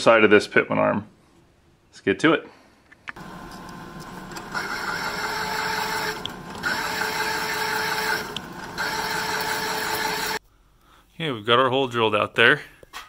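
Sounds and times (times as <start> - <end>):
drill cutting through steel: 3.3 - 10.4.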